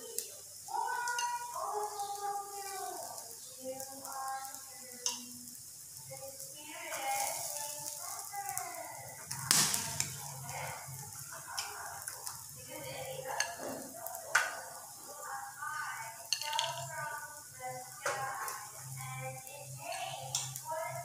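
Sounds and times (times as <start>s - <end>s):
chicken sizzling on a grill: 0.0s - 21.0s
metal tongs clicking on wire rack: 16.3s - 16.8s.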